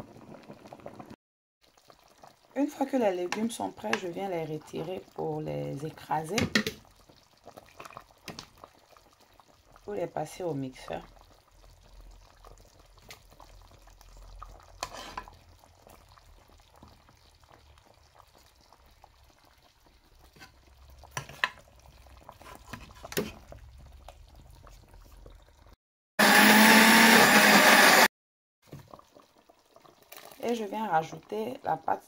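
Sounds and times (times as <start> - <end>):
blender motor whining: 26.2 - 28.1.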